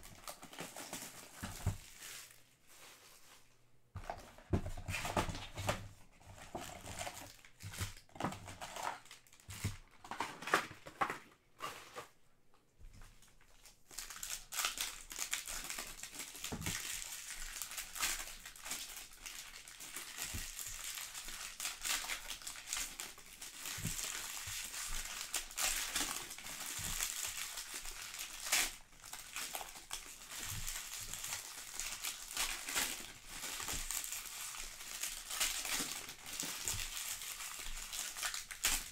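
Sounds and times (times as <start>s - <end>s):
foil wrappers crinkling: 0.0s - 3.4s, 4.1s - 11.8s, 13.2s - 38.9s
knocks and rustles of cardboard box: 0.6s - 2.0s, 4.0s - 8.4s.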